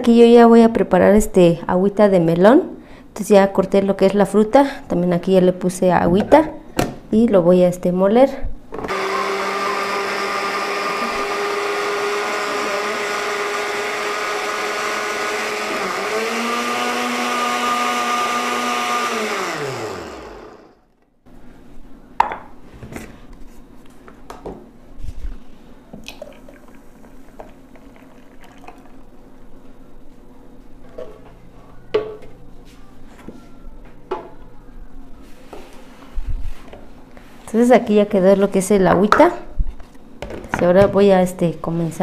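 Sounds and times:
blender motor running: 8.8s - 20.8s.

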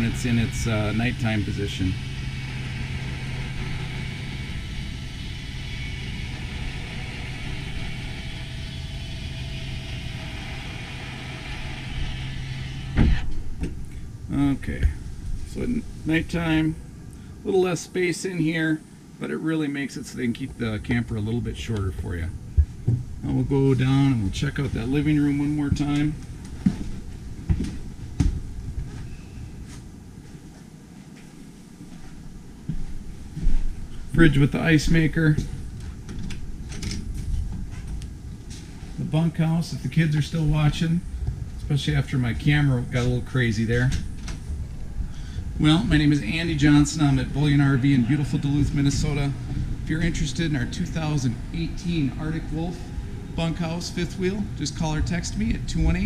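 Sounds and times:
electric lift motor humming: 0.0s - 17.4s
footsteps down steps: 22.5s - 23.2s, 25.6s - 34.0s.

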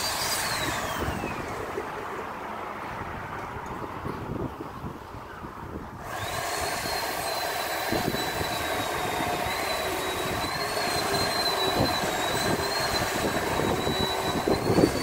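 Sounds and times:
chainsaw cutting wood: 0.0s - 1.8s, 6.0s - 15.0s.

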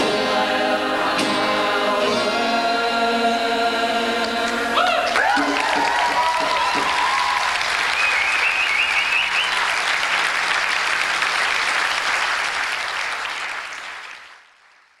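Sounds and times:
high wavering cheer: 4.6s - 9.9s
audience applauding: 4.8s - 15.0s.

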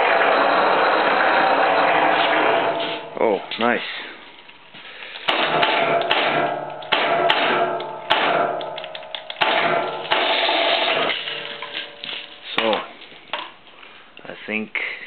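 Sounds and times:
hoist motor hum: 0.0s - 3.1s.

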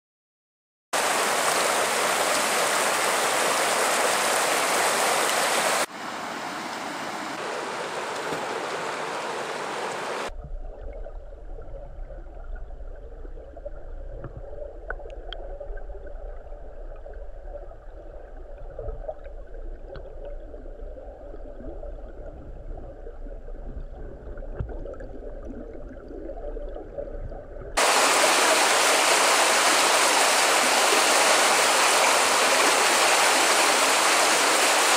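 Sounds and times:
river water rushing: 1.0s - 10.3s, 27.8s - 34.9s
muffled underwater current rumble: 10.3s - 27.9s.

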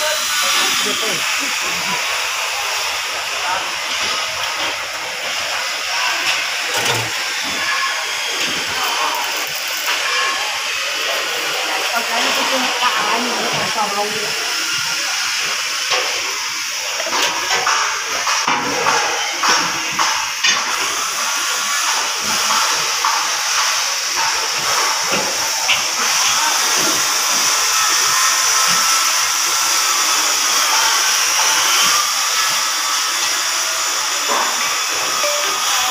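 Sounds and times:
knocks and clanks: 6.7s - 7.7s.

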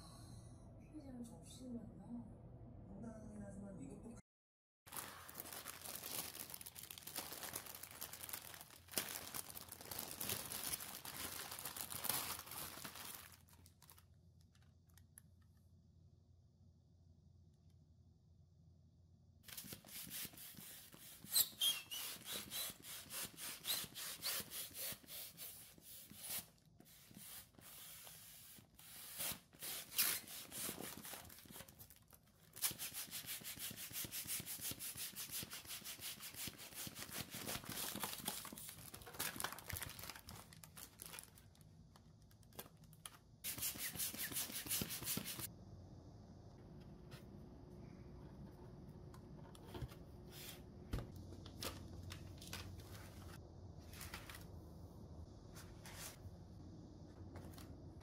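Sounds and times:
plastic and foil crinkling: 4.9s - 15.2s, 19.5s - 27.8s, 28.5s - 45.5s.

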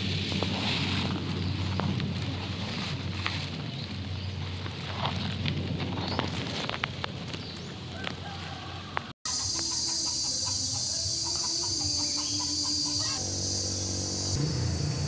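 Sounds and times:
wind rumbling on microphone: 0.0s - 9.1s
chickens clucking: 9.3s - 13.6s
high-pitched drone: 9.3s - 15.0s.

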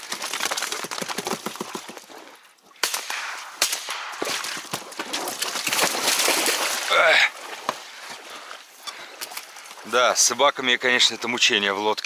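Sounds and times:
shotgun shots: 2.8s - 4.6s.

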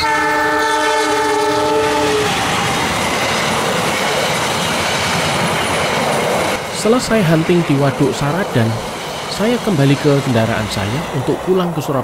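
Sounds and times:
locomotive horn: 0.0s - 2.7s
train coaches passing: 0.0s - 12.0s.

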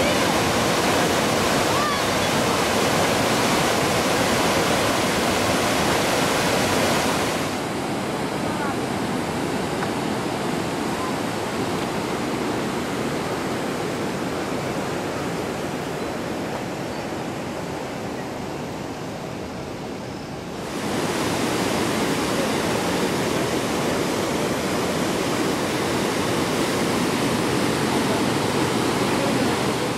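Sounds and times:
floodwater rushing over road: 0.0s - 15.9s, 20.6s - 29.9s.

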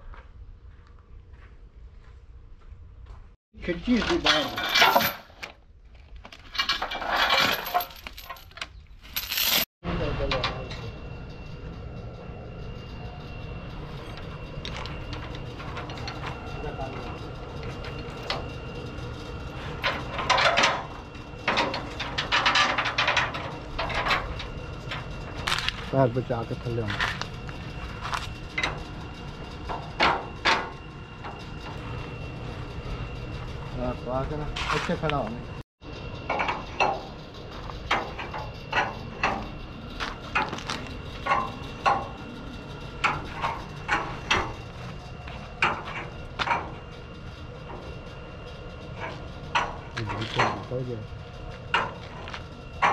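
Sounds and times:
heavy chain rattling and clinking: 3.8s - 5.4s, 6.3s - 9.7s, 13.8s - 35.6s.

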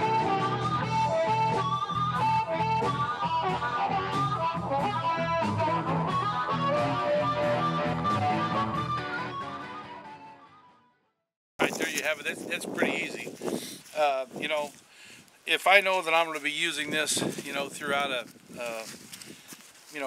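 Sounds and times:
guitar-led music: 0.0s - 10.9s.

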